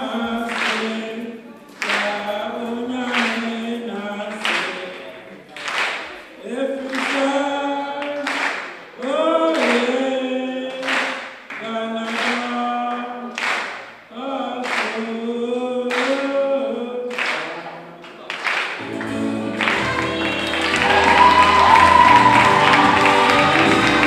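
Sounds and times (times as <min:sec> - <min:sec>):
group singing a cappella: 0:00.0 - 0:05.4, 0:06.2 - 0:13.4, 0:18.8 - 0:24.0
hands clapping: 0:00.5 - 0:01.0, 0:01.7 - 0:02.2, 0:03.1 - 0:03.5, 0:04.3 - 0:04.9, 0:05.5 - 0:06.2, 0:06.8 - 0:07.3, 0:07.9 - 0:10.0, 0:10.7 - 0:14.0, 0:14.6 - 0:15.1, 0:15.9 - 0:16.3, 0:17.1 - 0:24.0.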